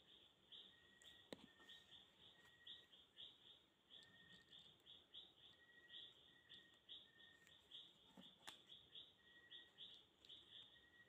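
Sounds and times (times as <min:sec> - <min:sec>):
faint high chirps: 0:00.0 - 0:11.0.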